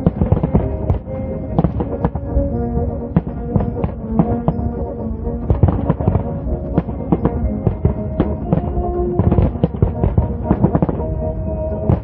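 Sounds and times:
fireworks bangs and pops: 0:00.0 - 0:02.4, 0:03.1 - 0:04.8, 0:05.5 - 0:11.1, 0:11.8 - 0:12.0
music with brass notes: 0:00.0 - 0:12.0.

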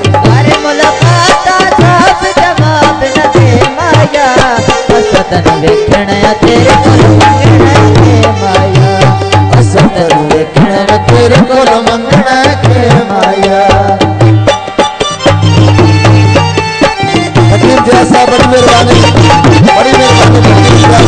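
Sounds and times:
tabla beat: 0:00.0 - 0:21.0.

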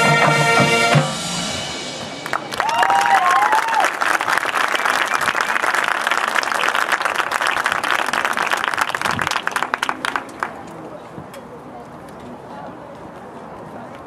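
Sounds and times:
audience applauding and cheering: 0:02.2 - 0:10.6
whoops: 0:02.5 - 0:04.0.

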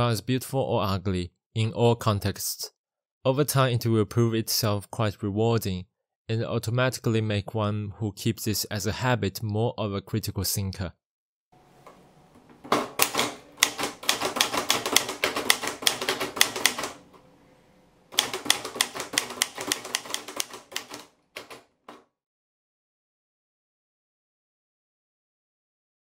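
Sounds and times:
manual typewriter typing: 0:12.7 - 0:17.2, 0:18.1 - 0:22.0.

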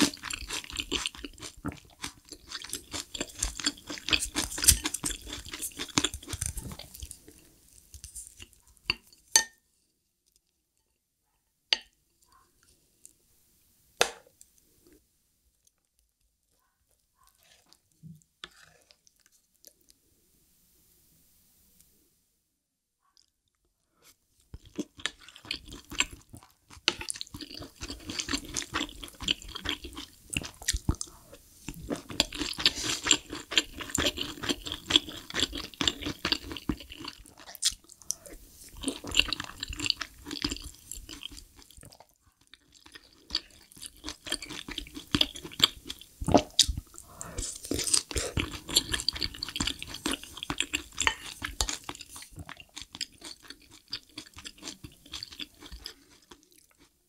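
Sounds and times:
chewing and wet mouth sounds: 0:00.0 - 0:09.2, 0:24.4 - 0:57.0.

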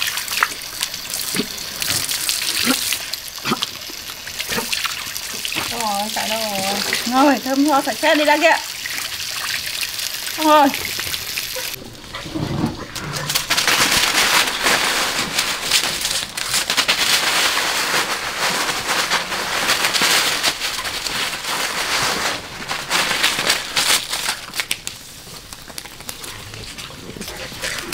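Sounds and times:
dry leaves crackling and rustling: 0:12.5 - 0:27.9.

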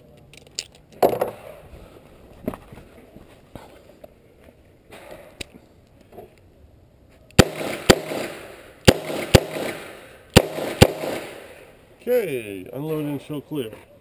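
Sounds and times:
revolver shots with echo: 0:07.4 - 0:11.6.

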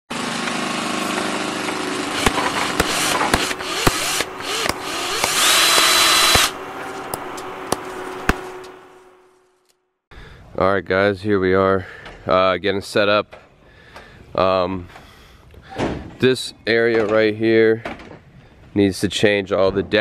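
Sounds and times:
sharp hits: 0:02.0 - 0:09.2
mechanical whirr: 0:02.2 - 0:08.8
high rising tone: 0:02.2 - 0:09.4.

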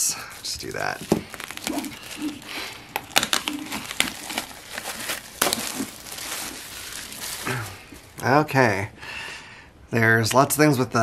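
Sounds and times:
plastic shrink wrap crinkling: 0:00.3 - 0:08.4.

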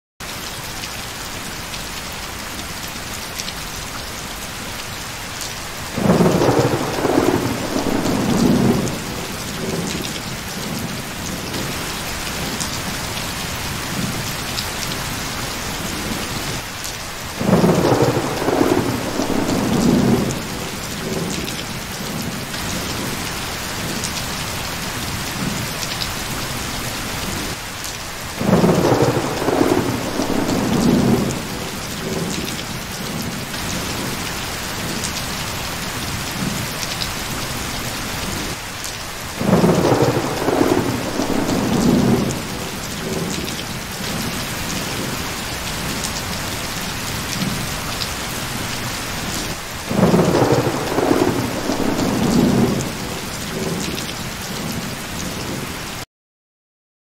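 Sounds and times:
steady rain: 0:00.2 - 0:56.1
thunder rumbling: 0:06.0 - 0:14.4, 0:17.4 - 0:23.2, 0:28.4 - 0:34.2, 0:39.4 - 0:47.7, 0:49.9 - 0:54.9.

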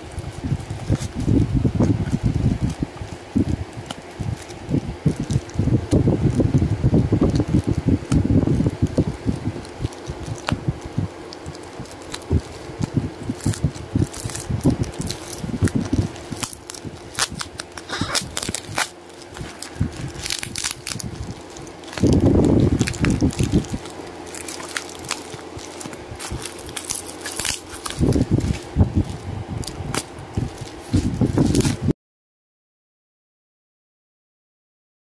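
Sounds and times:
bubble wrap crinkling: 0:00.0 - 0:31.9
fingers rubbing bubble wrap: 0:00.0 - 0:31.9.

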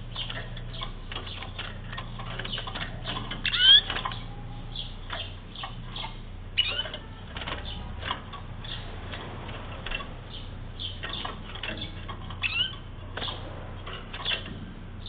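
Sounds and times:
canary call notes: 0:03.4 - 0:08.0.

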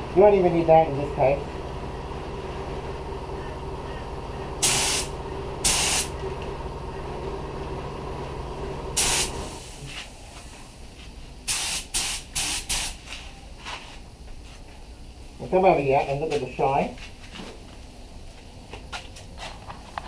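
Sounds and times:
steady background hum: 0:00.0 - 0:20.0
spray gun hissing: 0:04.6 - 0:06.1, 0:09.0 - 0:09.9, 0:11.5 - 0:13.0.

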